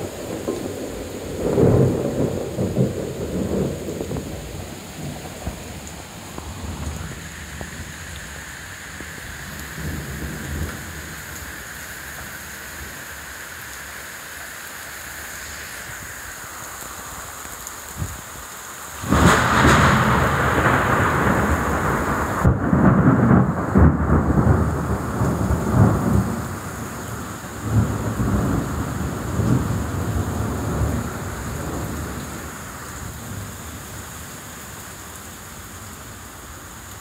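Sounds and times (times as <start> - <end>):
heavy rain: 0.0 - 37.0
thunder crash and rumbles: 19.0 - 26.8.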